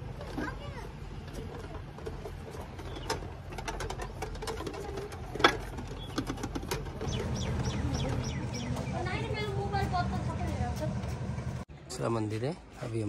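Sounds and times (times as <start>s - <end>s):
metal prayer wheels clicking: 0.0s - 9.1s.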